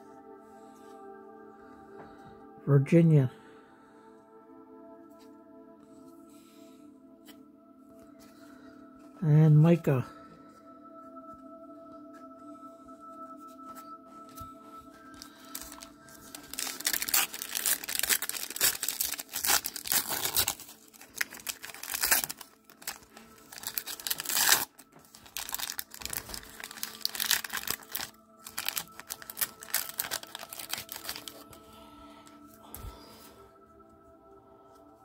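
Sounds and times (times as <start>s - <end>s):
card pack wrapper crinkling and tearing: 15.2s - 31.7s.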